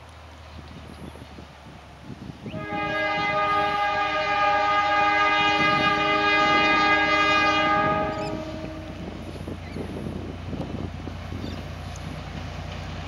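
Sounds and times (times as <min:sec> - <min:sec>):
locomotive air horn blast: 0:02.5 - 0:09.4.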